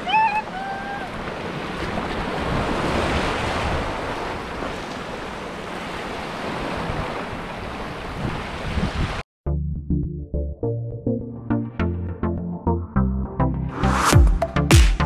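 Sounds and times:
wind rumbling on microphone: 0:00.0 - 0:05.3, 0:05.9 - 0:09.2
waves breaking over rocks: 0:00.0 - 0:09.2.

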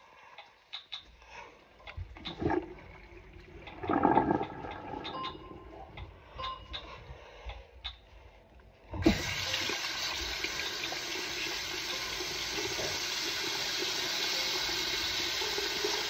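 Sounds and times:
water splashing in a sink: 0:02.0 - 0:05.7, 0:09.0 - 0:16.0.

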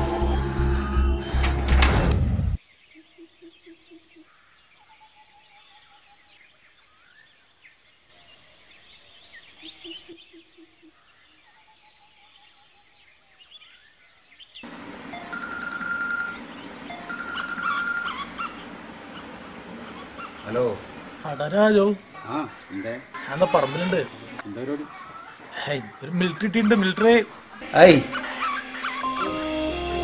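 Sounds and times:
birds chirping: 0:02.6 - 0:30.0
low pulsing call: 0:14.6 - 0:24.4, 0:26.0 - 0:30.0.

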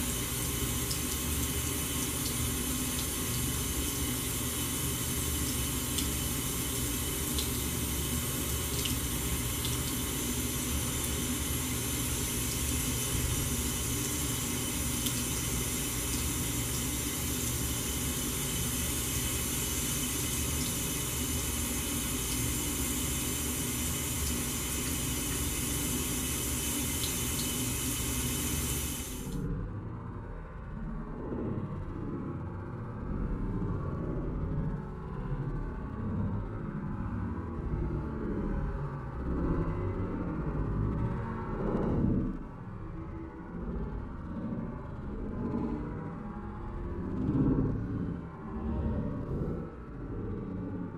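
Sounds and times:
faucet running into sink: 0:00.0 - 0:29.4.

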